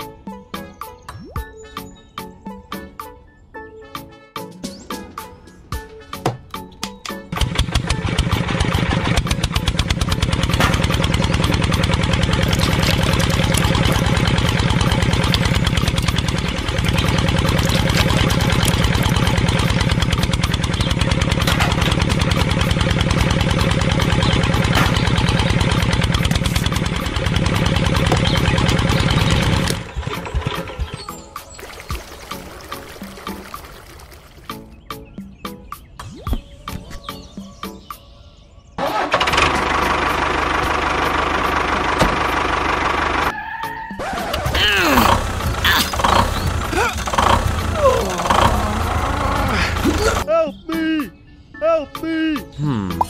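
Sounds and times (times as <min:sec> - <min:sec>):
model engine chugging: 0:07.3 - 0:31.0, 0:38.9 - 0:43.3, 0:44.8 - 0:50.2.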